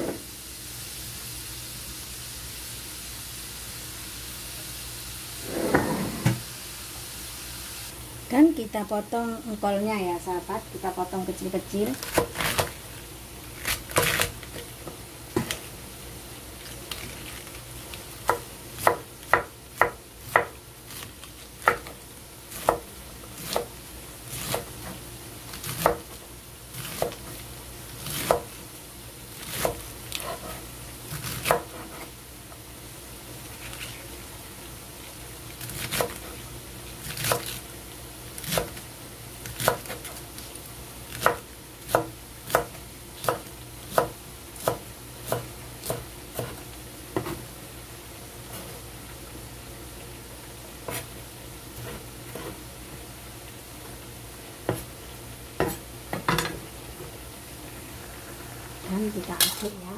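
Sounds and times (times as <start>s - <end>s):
knife chopping cabbage on wood: 12.0s - 12.8s, 13.6s - 15.6s, 18.2s - 23.7s, 24.3s - 27.4s, 28.0s - 28.6s, 29.4s - 32.1s, 35.6s - 36.4s, 37.0s - 37.6s, 38.4s - 38.8s, 39.4s - 40.2s, 41.1s - 47.4s, 50.8s - 51.1s.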